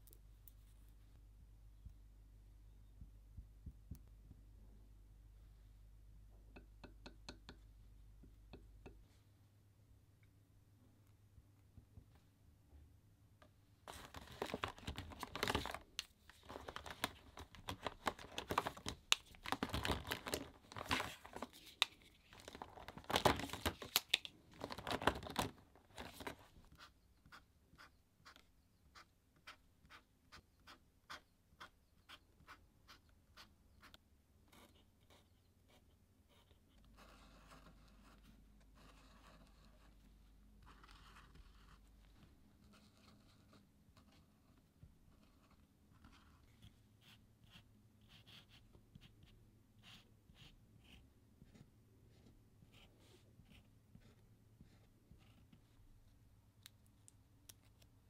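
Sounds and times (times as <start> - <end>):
marker scratching on paper: 26.7 - 39.9.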